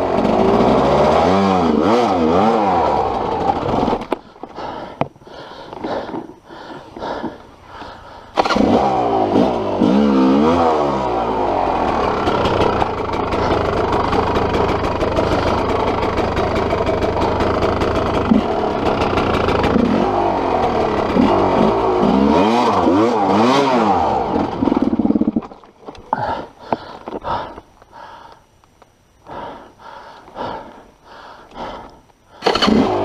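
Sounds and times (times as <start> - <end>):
dirt bike engine revving: 0.0 - 4.2, 8.3 - 25.6, 32.4 - 33.0.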